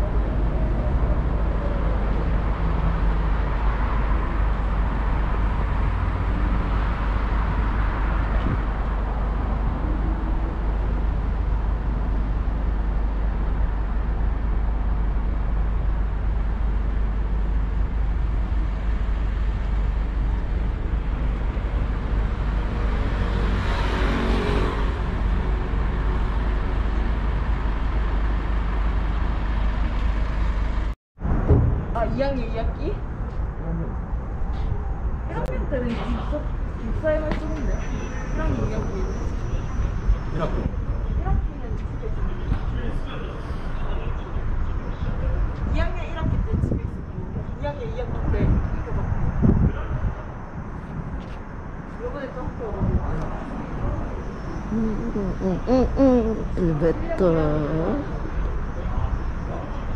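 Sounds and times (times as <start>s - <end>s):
street traffic rumble: 0.0s - 59.9s
vehicle passing by: 21.5s - 27.6s.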